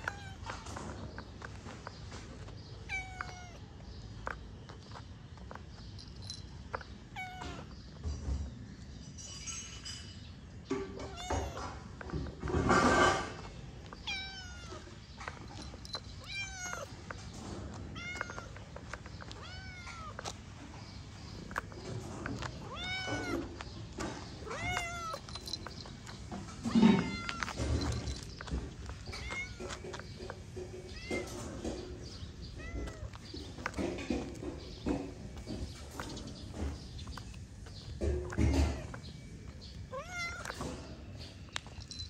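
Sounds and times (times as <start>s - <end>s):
cat meowing: 22.6s - 23.5s, 39.9s - 40.6s.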